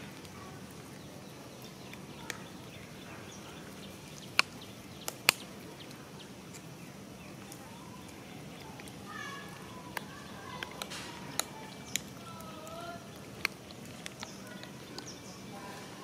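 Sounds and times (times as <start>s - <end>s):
outdoor background noise: 0.0s - 16.0s
sharp clicks: 4.1s - 6.6s, 9.9s - 15.2s
faint high calls: 8.9s - 13.2s.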